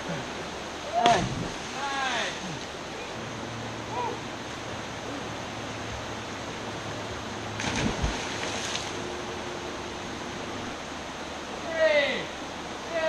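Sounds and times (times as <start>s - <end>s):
steady background hiss: 0.0s - 13.0s
person splashing into water: 7.6s - 8.9s.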